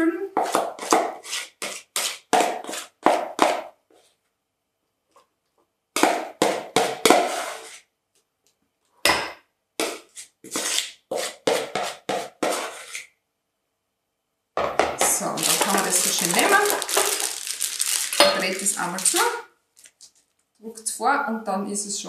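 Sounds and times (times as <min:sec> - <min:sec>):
utensil scraping mixing bowl: 0:00.4 - 0:03.6, 0:06.8 - 0:07.9, 0:09.8 - 0:13.1.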